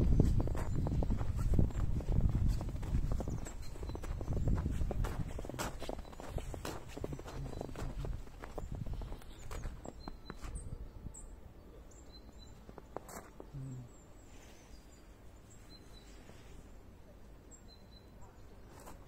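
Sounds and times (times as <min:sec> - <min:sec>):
footsteps crunching in snow: 0:00.0 - 0:10.7, 0:12.4 - 0:13.6, 0:18.6 - 0:19.0
faint bird chirps: 0:00.1 - 0:19.0.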